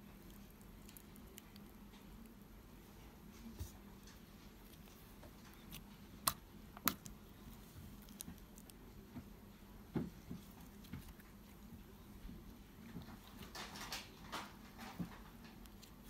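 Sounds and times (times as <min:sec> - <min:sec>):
hands squishing slime: 0:04.5 - 0:09.1.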